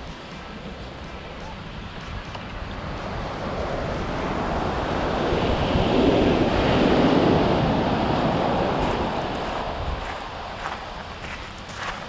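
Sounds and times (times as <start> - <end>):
wind rumble on microphone: 0.7 - 12.0
waves washing up shingle beach: 2.8 - 11.4.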